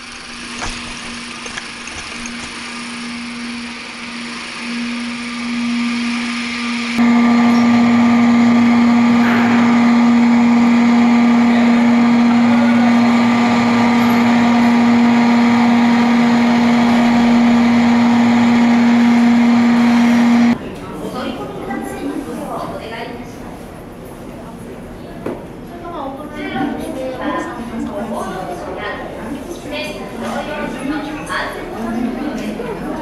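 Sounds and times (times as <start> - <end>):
low machinery drone: 0.0 - 20.6.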